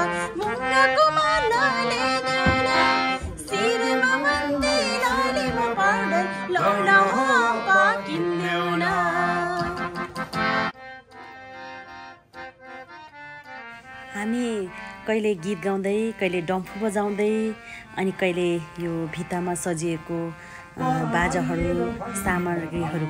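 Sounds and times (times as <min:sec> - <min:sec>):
harmonium chords and melody: 0:00.0 - 0:23.0
man singing folk style: 0:20.8 - 0:23.0.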